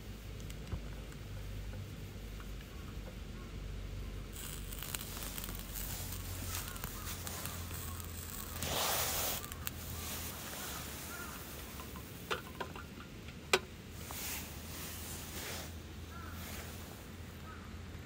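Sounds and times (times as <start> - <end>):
faint chirps: 2.7 - 12.0
sharp clicks: 4.4 - 8.7
short rush of noise: 4.4 - 11.8.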